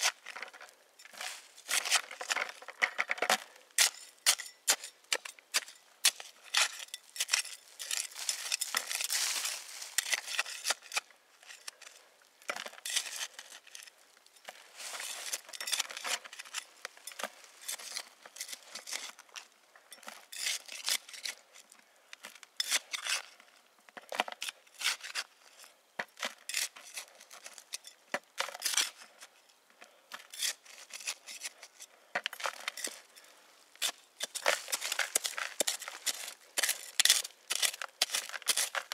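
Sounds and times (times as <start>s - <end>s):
hand tool scraping dry soil: 0.0s - 38.9s.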